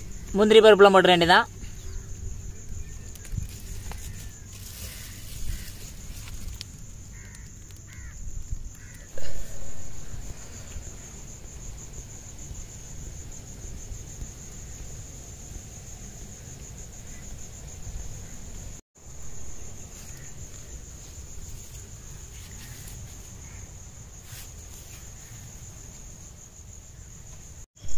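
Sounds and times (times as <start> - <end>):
crickets trilling: 0.0 - 27.9.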